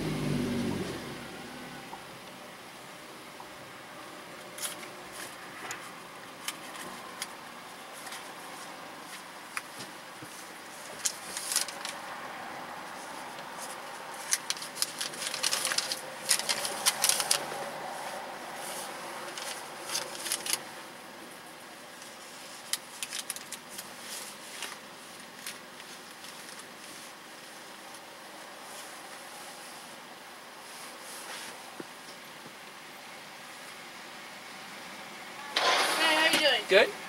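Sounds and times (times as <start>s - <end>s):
rustling and clicks of handling: 4.4s - 12.0s, 13.1s - 17.5s, 19.2s - 20.6s, 22.0s - 27.2s.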